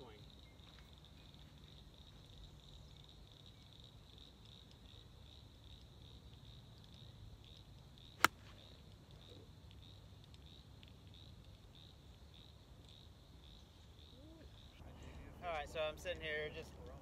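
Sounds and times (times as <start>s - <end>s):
low outdoor background noise: 0.0s - 17.0s
golf club striking ball: 8.2s - 8.7s.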